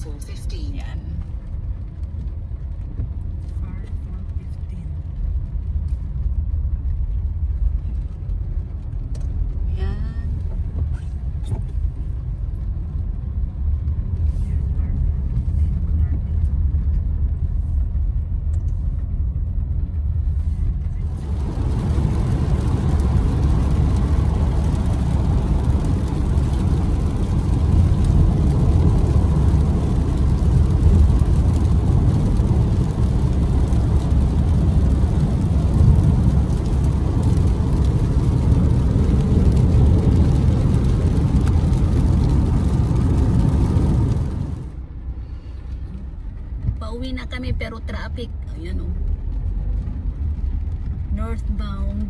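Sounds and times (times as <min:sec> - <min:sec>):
car cabin road rumble: 0:00.0 - 0:52.0
tyres hissing on wet road: 0:20.3 - 0:45.9.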